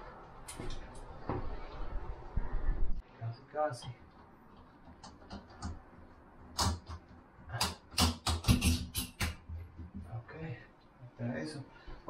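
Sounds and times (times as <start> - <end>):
plumbing hardware clicking and knocking: 3.8 - 10.1.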